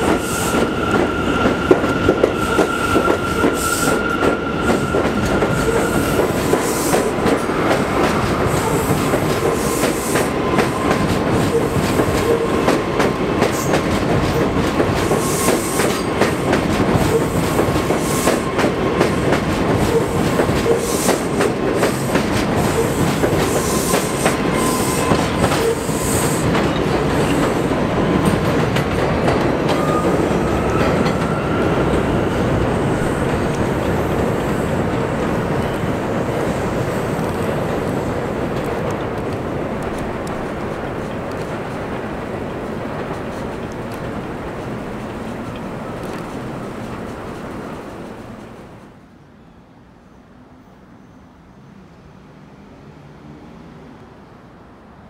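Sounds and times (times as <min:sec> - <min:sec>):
subway train rumble: 0:00.0 - 0:55.0.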